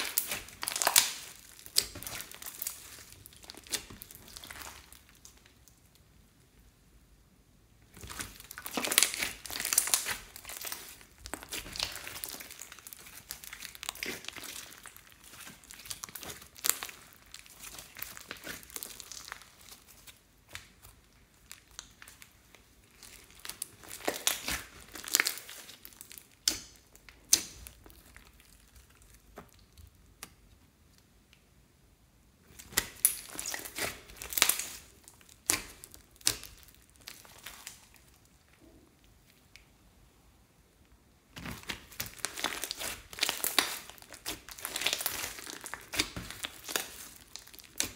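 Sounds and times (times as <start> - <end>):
slime popping and crackling: 0.0 - 6.1, 7.9 - 30.4, 32.5 - 39.6, 41.3 - 47.9.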